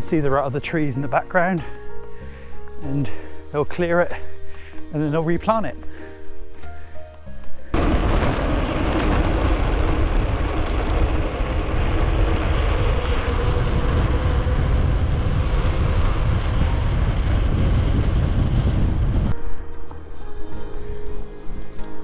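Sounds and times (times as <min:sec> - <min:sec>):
bike tyres rolling on gravel: 0:00.0 - 0:19.6
wind buffeting microphone: 0:07.7 - 0:19.7.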